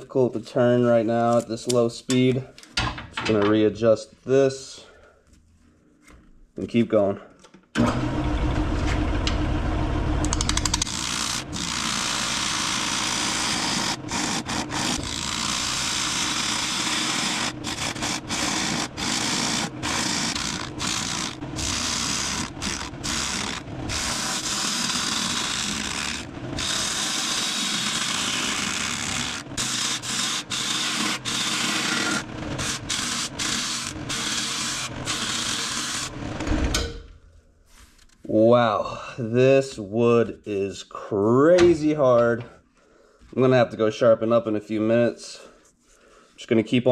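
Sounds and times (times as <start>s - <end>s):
lathe motor hum: 7.8s - 36.5s
gouge shearing wood on lathe: 10.5s - 36.4s.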